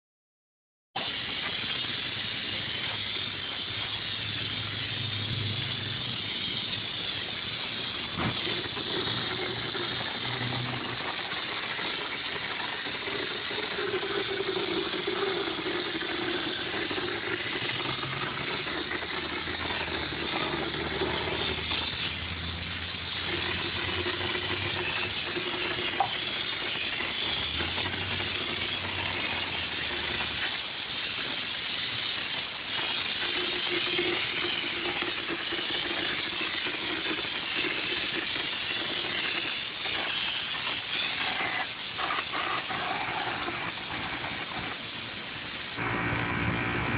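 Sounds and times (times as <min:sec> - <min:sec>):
spray gun hissing: 0:01.0 - 0:46.0
low hum: 0:45.8 - 0:46.9.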